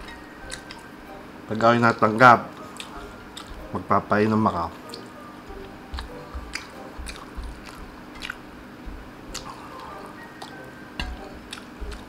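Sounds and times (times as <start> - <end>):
close chewing of noodles: 0.0 - 0.8, 2.6 - 3.7, 4.9 - 12.0
mouth clicks and smacks: 6.0 - 8.4, 9.3 - 12.0.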